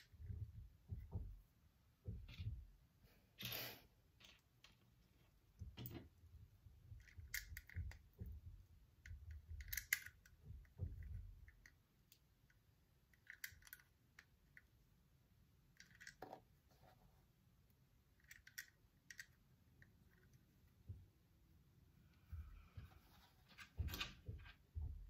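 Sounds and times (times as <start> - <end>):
plastic bricks clicking together: 9.3 - 10.3, 15.8 - 16.3
soft handling noise: 22.0 - 25.0.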